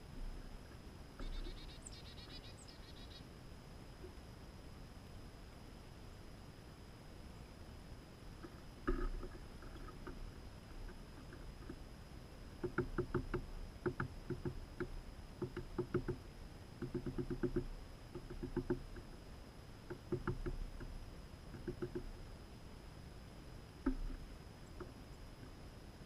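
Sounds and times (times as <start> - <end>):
bird pecking taps: 12.6 - 16.2, 16.8 - 18.8, 19.9 - 20.9, 21.5 - 22.1.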